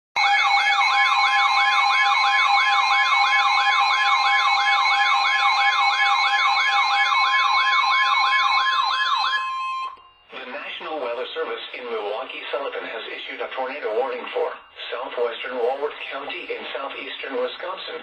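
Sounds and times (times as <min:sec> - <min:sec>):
siren-like alarm sweep: 0:00.2 - 0:11.0.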